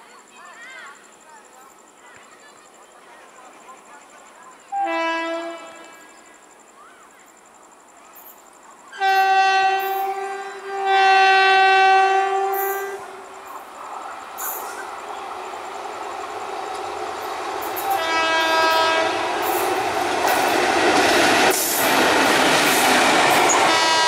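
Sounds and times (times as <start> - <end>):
train horn blasts: 4.7 - 6.1, 9.0 - 13.3, 17.8 - 19.6, 23.5 - 24.0
train running noise: 8.2 - 24.0.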